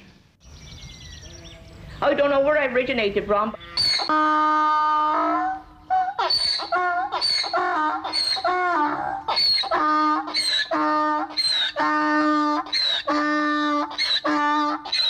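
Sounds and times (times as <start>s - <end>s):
donkey braying: 3.5s - 15.0s.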